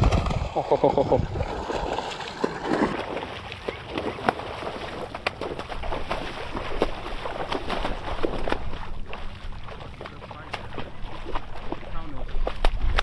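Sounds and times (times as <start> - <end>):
fish thrashing and splashing water: 0.0 - 13.0.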